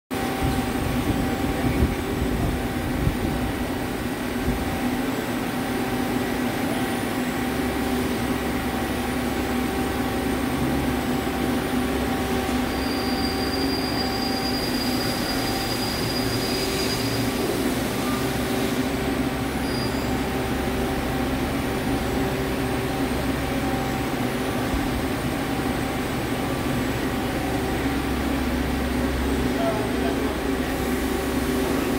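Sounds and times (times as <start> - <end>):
thin high whine: 11.6 - 18.9, 19.5 - 20.5.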